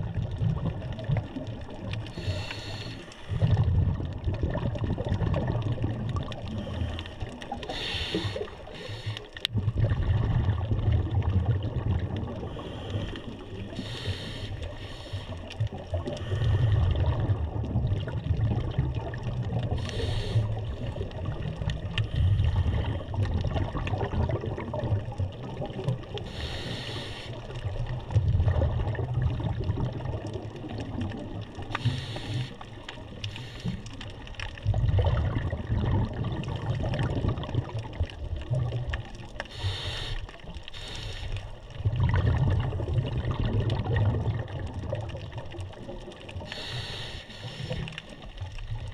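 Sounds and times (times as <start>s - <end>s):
exhaled bubbles rumbling: 0.0s - 48.9s
regulator air hiss: 2.2s - 3.3s, 7.7s - 9.2s, 13.7s - 15.4s, 19.8s - 20.5s, 26.3s - 27.4s, 31.8s - 32.6s, 39.5s - 41.4s, 46.5s - 47.8s.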